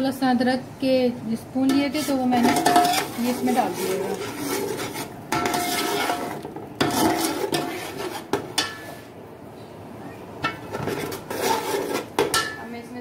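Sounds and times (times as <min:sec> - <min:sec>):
metal spatula scraping a pot: 0:01.7 - 0:09.1, 0:10.4 - 0:12.6.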